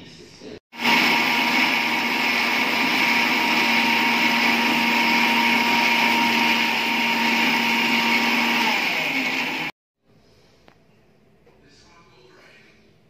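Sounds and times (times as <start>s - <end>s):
mixer grinder whining: 0.8s - 9.8s.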